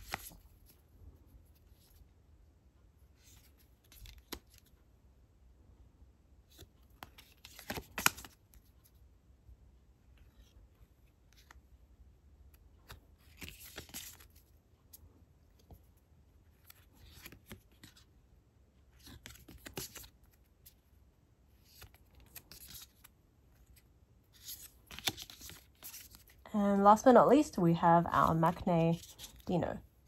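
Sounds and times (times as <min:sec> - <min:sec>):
photocards rubbing together: 0:00.0 - 0:00.9, 0:12.9 - 0:14.5, 0:19.0 - 0:20.9, 0:21.5 - 0:26.4, 0:28.2 - 0:29.6.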